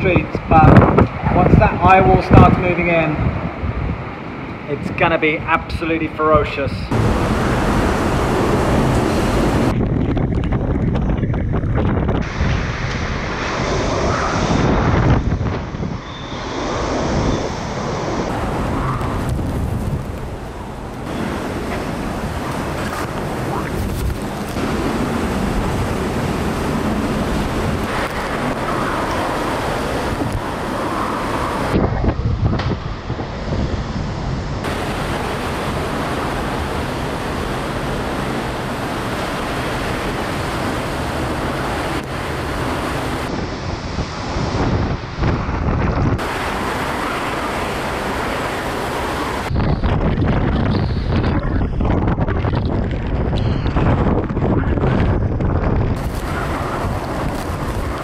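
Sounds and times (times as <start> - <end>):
gusting wind buffeting microphone: 0.0 - 58.0
heavy driving rain: 6.9 - 9.7, 17.9 - 50.4, 55.7 - 58.0.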